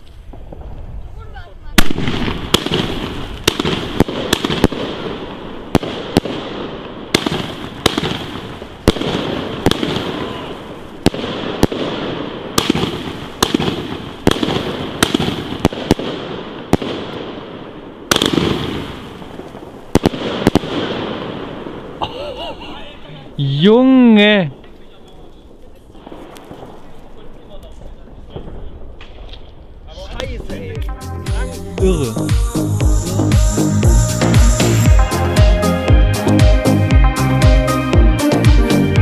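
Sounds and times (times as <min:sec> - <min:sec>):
firework bursts hissing: 0:00.0 - 0:22.0, 0:30.1 - 0:38.8
firework shots reports: 0:00.0 - 0:22.0, 0:24.0 - 0:36.5.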